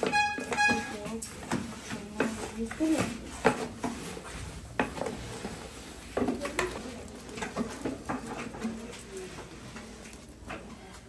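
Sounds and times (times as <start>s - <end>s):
utensils knocking and scraping pots: 0.0s - 10.8s.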